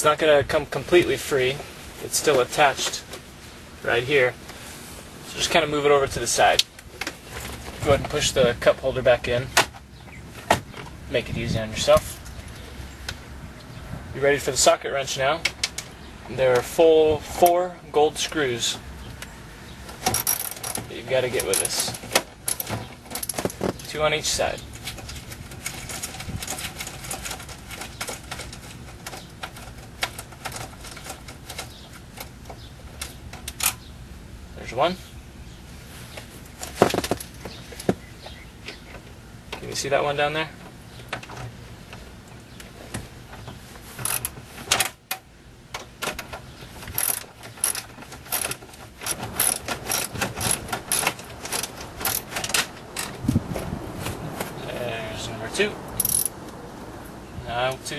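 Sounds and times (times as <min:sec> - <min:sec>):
ratchet wrench clicking: 0:47.0 - 0:52.3, 0:56.0 - 0:56.3.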